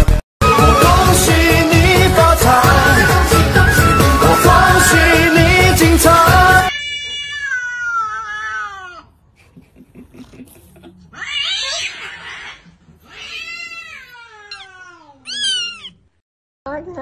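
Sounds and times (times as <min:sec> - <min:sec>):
cats meowing and yowling: 0:06.7 - 0:09.2, 0:11.1 - 0:16.1.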